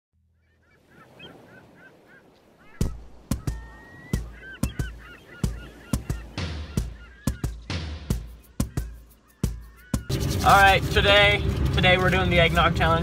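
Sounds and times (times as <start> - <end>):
short bird-like calls: 0.3 - 10.2.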